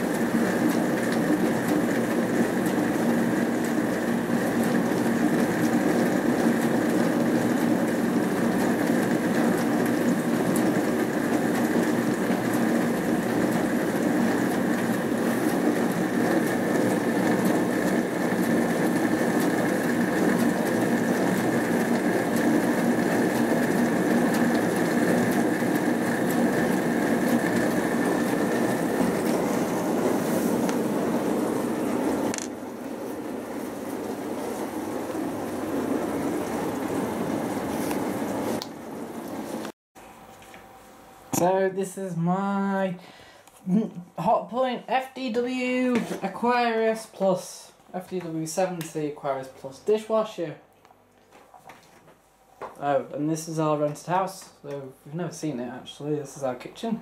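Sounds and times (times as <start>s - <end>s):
dishwasher pump and water spray: 0.0s - 39.7s.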